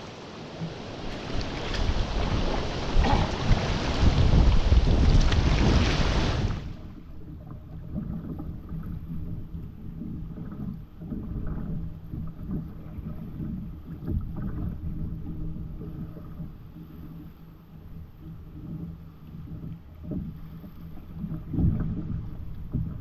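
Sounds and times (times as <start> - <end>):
whitewater river rushing: 0.0 - 6.8
wind buffeting microphone: 0.8 - 8.5.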